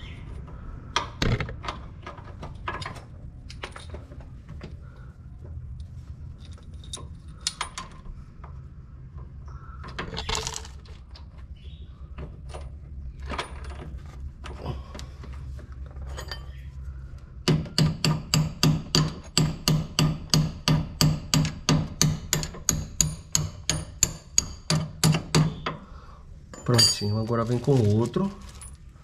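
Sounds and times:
metal parts clicking: 5.8 - 8.1.

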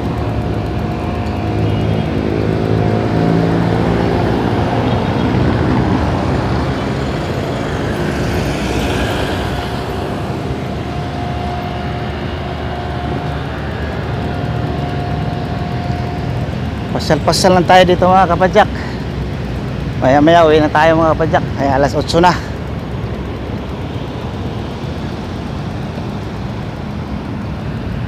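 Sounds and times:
road traffic passing: 0.0 - 28.0.

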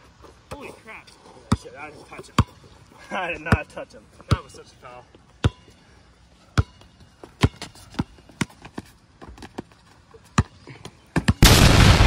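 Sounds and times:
basketball bouncing on concrete: 4.3 - 4.5, 6.6 - 9.6, 11.2 - 11.4.

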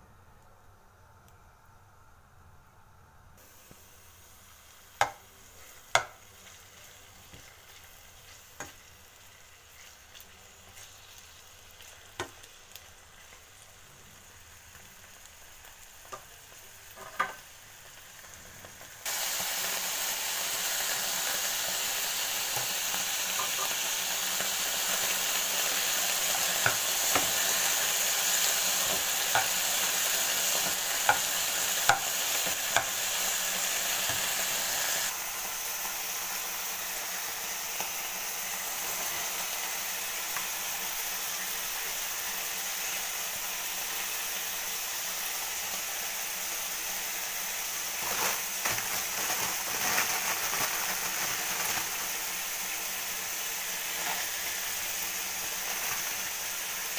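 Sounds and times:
loud steady sizzle: 3.3 - 56.9
faint crackle of frying: 3.4 - 56.9.

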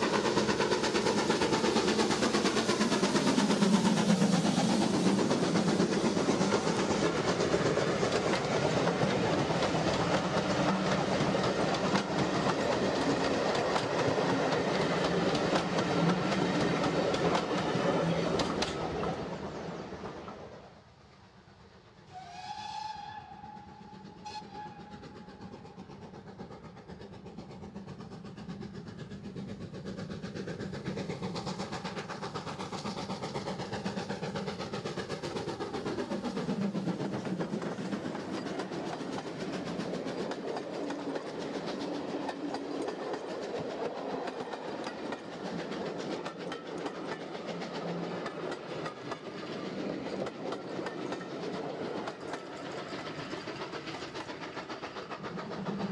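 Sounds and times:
coaches clickety-clack on rails: 0.0 - 55.9
steam locomotive passing: 0.0 - 55.9
steam locomotive whistle: 22.1 - 25.4.

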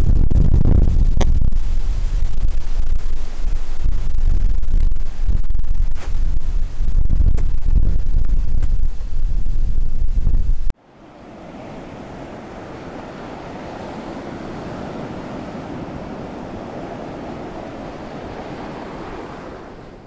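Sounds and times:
wind buffeting microphone: 0.0 - 20.0
ocean surf: 10.8 - 20.0.

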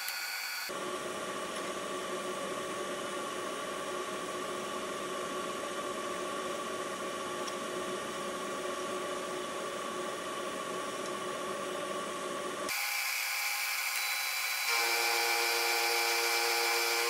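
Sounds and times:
high machining whine: 0.0 - 0.7, 12.7 - 17.0
milling machine humming: 0.0 - 0.7, 12.7 - 17.0.

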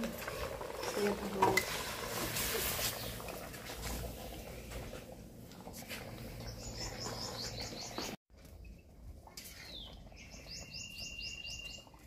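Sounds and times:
spatula scraping wok: 0.0 - 4.2
curry bubbling and sizzling in wok: 0.0 - 8.2
bird chirping: 6.4 - 8.2, 9.6 - 12.0.

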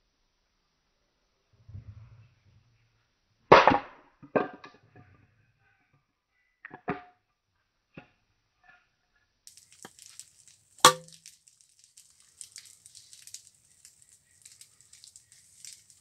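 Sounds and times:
steady high hiss with crackling: 9.5 - 16.0
chisel thunk into wooden stump: 10.8 - 11.1.

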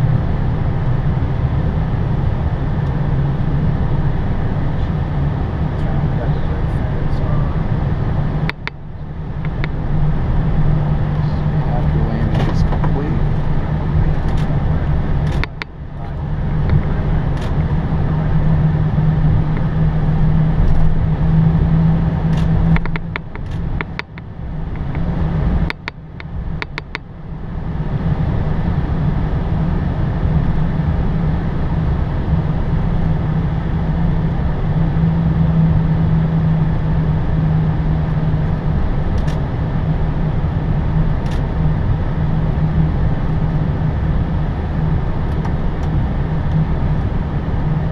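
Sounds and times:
jet engines idling: 0.0 - 47.9
steady low hum: 0.0 - 47.9
sharp clicks: 8.4 - 8.8, 9.4 - 9.8, 14.1 - 14.5, 15.2 - 15.8, 16.6 - 17.7, 22.3 - 27.1, 39.2 - 39.4.

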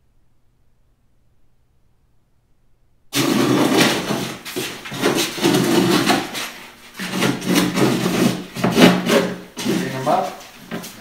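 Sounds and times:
low steady hum: 0.0 - 11.0
rasping rubbing on fibreglass: 3.2 - 10.9.

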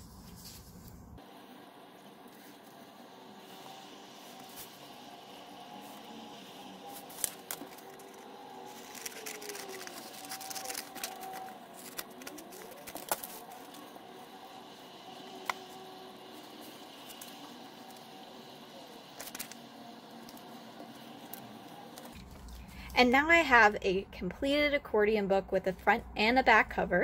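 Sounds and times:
paper rustling: 0.0 - 1.2, 6.8 - 13.9, 19.2 - 19.6
glue stick rubbing: 6.9 - 13.8.

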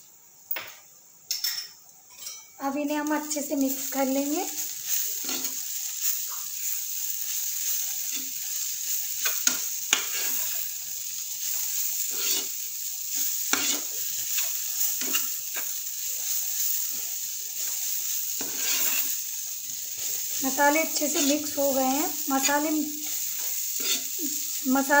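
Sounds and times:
food sizzling: 0.0 - 25.0
spatula scraping frying pan: 3.6 - 10.8, 11.4 - 24.8
spatula tapping pan: 9.2 - 10.2, 13.2 - 15.8.

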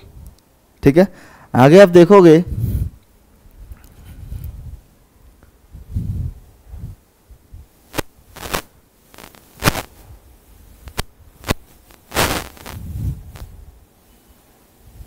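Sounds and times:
rustling: 7.8 - 10.1, 10.7 - 13.5.

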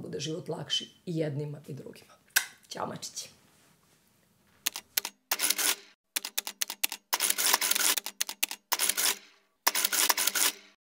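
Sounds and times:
rapid clicking and scratchy strokes: 4.6 - 10.8.

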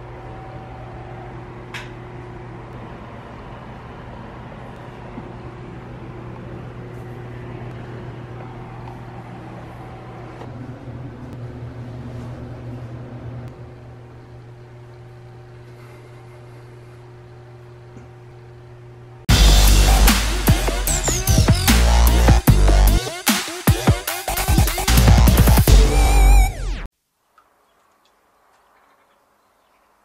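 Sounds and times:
ventilation fan hum: 0.0 - 20.1.

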